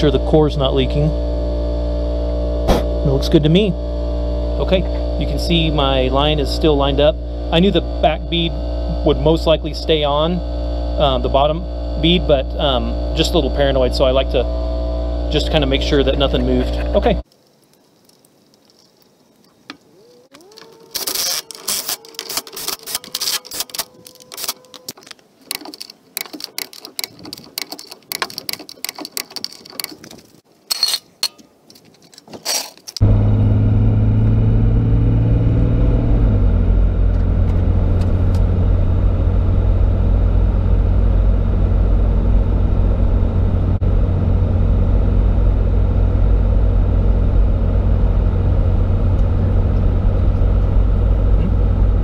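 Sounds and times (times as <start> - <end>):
truck engine and tyres droning: 0.0 - 17.2, 33.0 - 52.0
clicks and knocks at wheel hub: 24.9 - 30.3.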